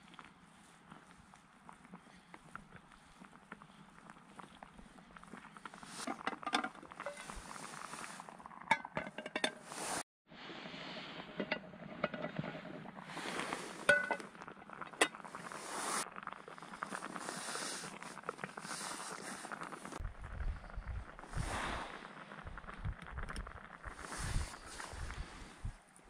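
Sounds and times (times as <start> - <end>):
metal pans clinking: 8.7 - 9.6, 13.9 - 14.2.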